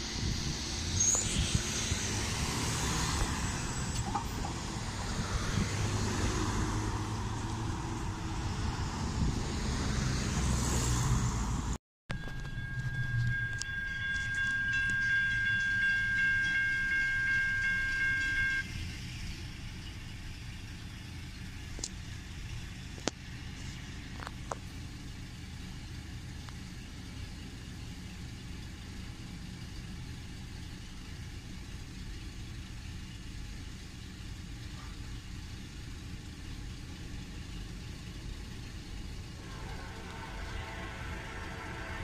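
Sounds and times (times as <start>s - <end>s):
car engine idling: 0.0s - 42.0s
faint multi-pitched tone: 0.1s - 4.9s, 12.1s - 18.8s, 39.3s - 42.0s.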